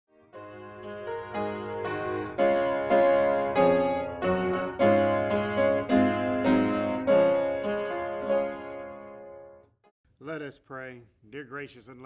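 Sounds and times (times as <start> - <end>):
keyboard melody: 0.1 - 9.8.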